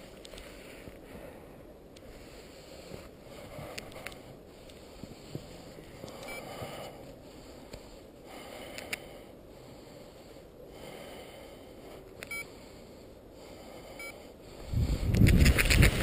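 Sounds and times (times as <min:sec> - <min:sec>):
short electronic beeps: 0:12.3 - 0:12.5
wind noise on microphone: 0:14.6 - 0:16.0.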